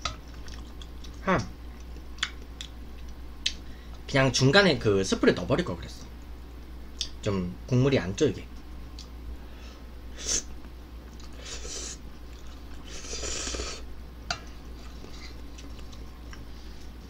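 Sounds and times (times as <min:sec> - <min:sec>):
low steady hum: 0:00.0 - 0:17.0
person slurping noodles: 0:12.8 - 0:13.8.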